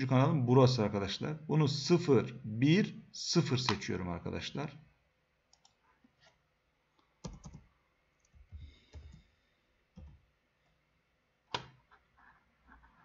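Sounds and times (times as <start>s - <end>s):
computer keyboard typing: 7.2s - 9.2s.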